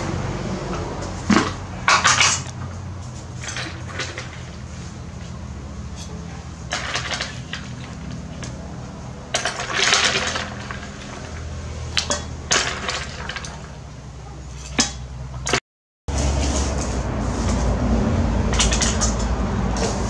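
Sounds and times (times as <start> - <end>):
ice cubes clattering into steel bowl: 12.0 - 13.7.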